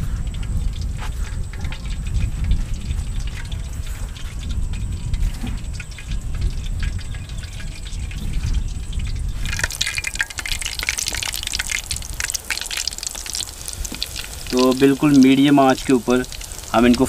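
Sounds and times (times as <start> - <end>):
deep-frying sizzling and crackling: 0.0 - 17.0
breadcrumbs rustling: 9.3 - 17.0.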